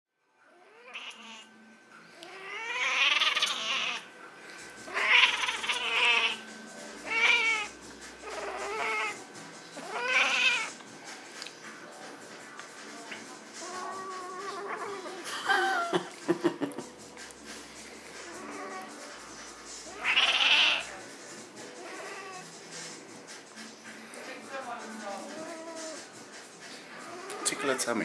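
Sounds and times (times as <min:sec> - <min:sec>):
cat yowling: 0:00.5 - 0:01.5, 0:02.2 - 0:04.1, 0:04.9 - 0:09.2, 0:09.8 - 0:10.8, 0:13.6 - 0:15.2, 0:18.2 - 0:19.0, 0:19.8 - 0:21.0, 0:21.8 - 0:22.5, 0:25.2 - 0:26.2, 0:27.1 - 0:27.8.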